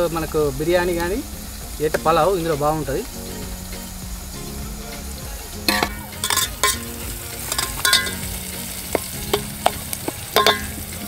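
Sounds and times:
onions sizzling in hot oil: 0:00.0 - 0:11.0
metal ladle knocking on pot: 0:05.7 - 0:06.8, 0:07.5 - 0:10.8.

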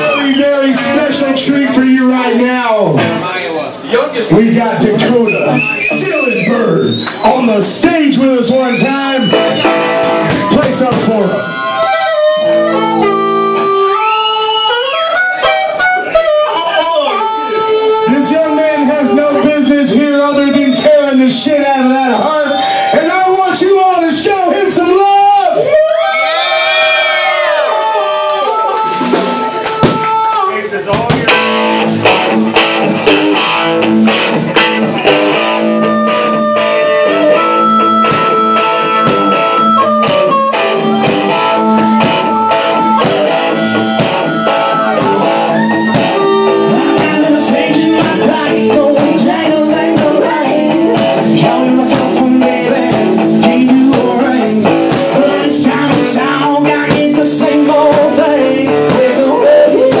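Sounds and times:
drums: 0:00.0 - 0:03.5, 0:04.2 - 1:00.0
electric guitar: 0:00.0 - 0:23.0, 0:31.2 - 1:00.0
bass guitar: 0:00.0 - 1:00.0
harmonica bending notes: 0:11.3 - 0:21.2, 0:31.3 - 0:56.6.

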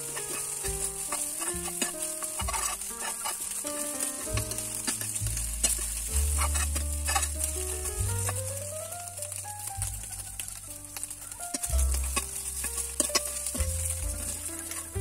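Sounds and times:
metal spoon scraping pan: 0:00.0 - 0:09.4, 0:10.5 - 0:15.0
background music with bass: 0:00.0 - 0:15.0
food sizzling in a frying pan: 0:00.0 - 0:15.0.

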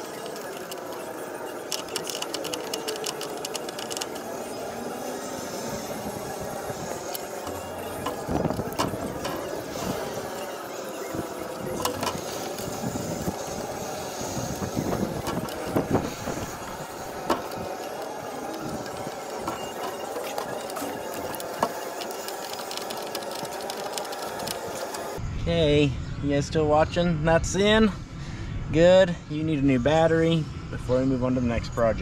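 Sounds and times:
small engine droning: 0:00.0 - 0:25.2.

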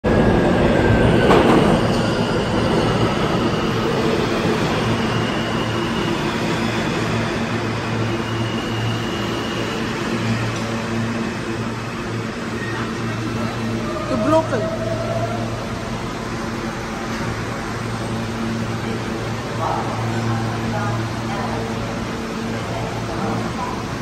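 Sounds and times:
subway train pulling in: 0:00.0 - 0:24.0
high wheel squeals: 0:04.6 - 0:07.1.

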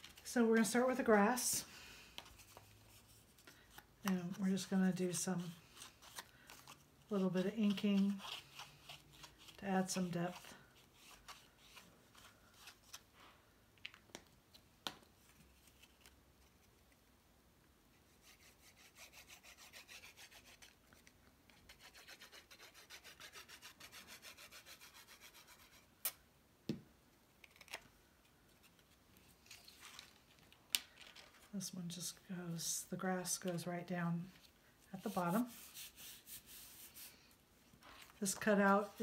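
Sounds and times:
ink applicator rubbing paper: 0:35.0 - 0:37.1.

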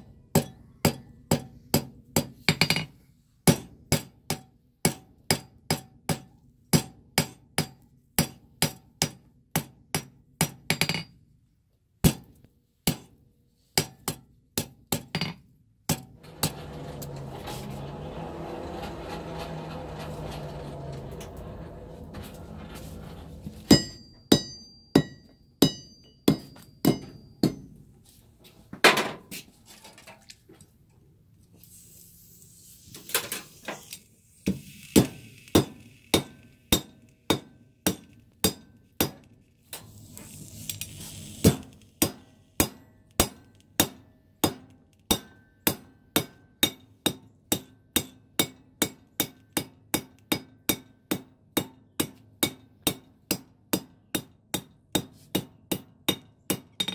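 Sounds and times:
hammer striking hot metal: 0:23.7 - 0:27.7.

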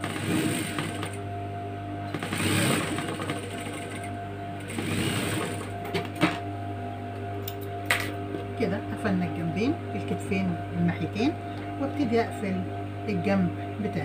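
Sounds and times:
sewing machine stitching: 0:00.0 - 0:01.2, 0:02.1 - 0:05.8
sewing machine motor hum: 0:00.0 - 0:01.3, 0:02.0 - 0:06.4.

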